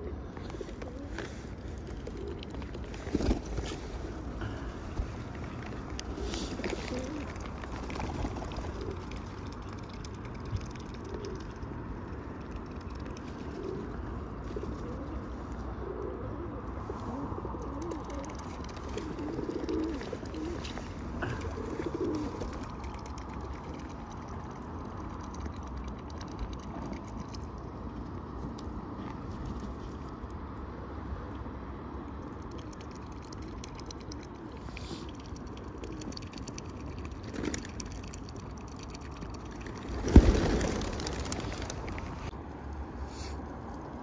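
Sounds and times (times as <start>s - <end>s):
pigeons cooing: 6.1s - 9.3s, 13.2s - 22.8s.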